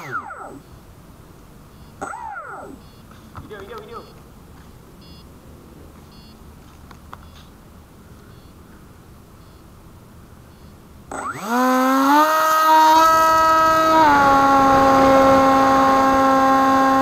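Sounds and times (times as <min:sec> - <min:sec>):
electric motor and propeller whine: 0:00.0 - 0:03.0, 0:09.2 - 0:17.0
short high beeps: 0:01.7 - 0:03.2, 0:03.8 - 0:04.2, 0:05.0 - 0:05.3, 0:06.1 - 0:06.4.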